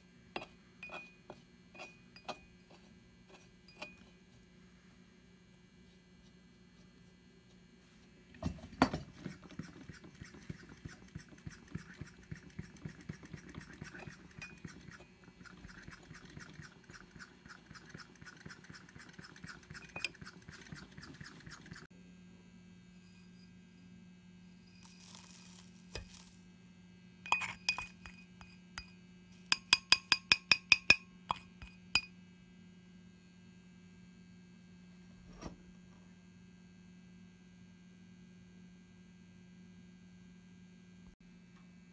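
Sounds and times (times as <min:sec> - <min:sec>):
low steady hum: 0:00.0 - 0:32.4
glass clinking: 0:27.3 - 0:28.9, 0:29.5 - 0:32.1.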